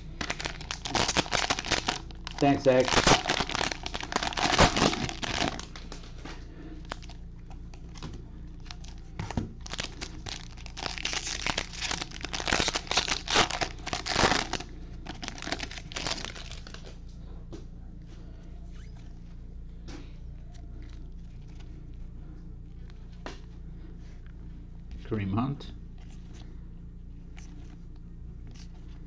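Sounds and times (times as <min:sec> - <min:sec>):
cellophane crinkling and tearing: 0:00.0 - 0:06.1, 0:06.8 - 0:16.9, 0:28.4 - 0:29.0.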